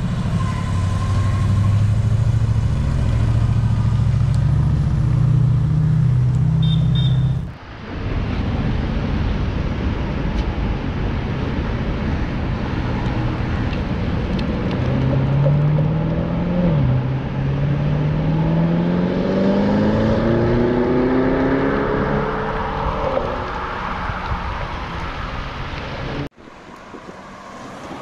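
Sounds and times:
car engine droning: 0.0s - 9.6s
traffic noise: 0.0s - 28.0s.

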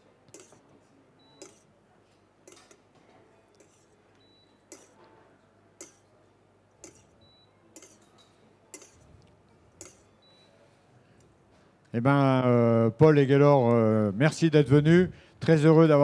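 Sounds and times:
spoon clicking against a pan: 0.3s - 0.6s, 1.3s - 1.7s, 2.4s - 2.8s, 3.5s - 4.0s, 4.7s - 5.0s, 5.8s - 6.1s, 6.8s - 7.2s, 7.8s - 10.2s.

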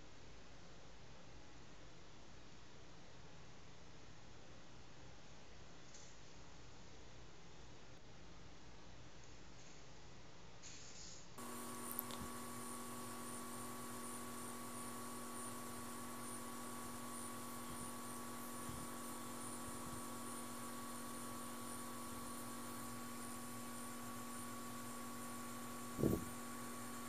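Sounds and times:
faint high whine and hiss: 0.0s - 27.0s
steady electrical hum: 0.0s - 27.0s
tiny clicks: 11.8s - 12.3s.

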